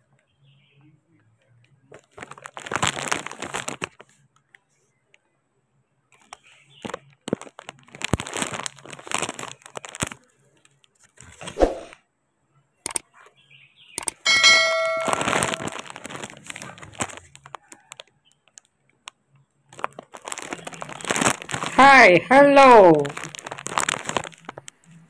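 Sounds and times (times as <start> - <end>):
leaves rustling and crackling: 1.9 - 4.3, 6.2 - 11.9, 14.3 - 18.6, 19.7 - 25.0
sharp clicks: 12.8 - 13.1, 14.0 - 14.2
ringing ding: 14.3 - 15.8.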